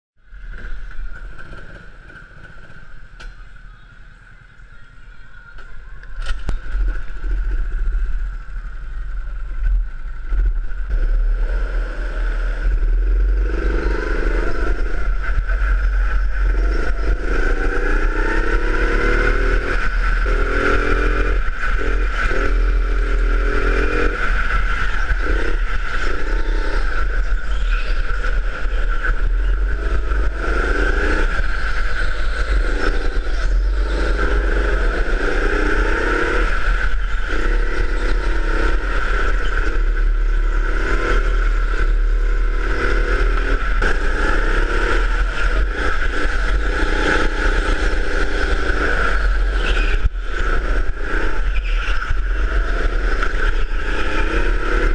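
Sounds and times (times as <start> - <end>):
go-kart engine revving: 0.3 - 4.6, 5.5 - 54.9.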